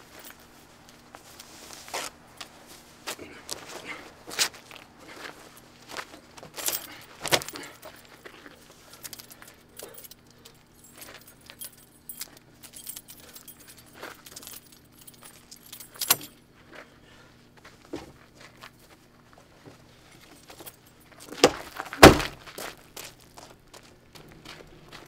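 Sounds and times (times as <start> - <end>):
clothing rustling: 0.0 - 9.6
light jingling: 6.3 - 16.5.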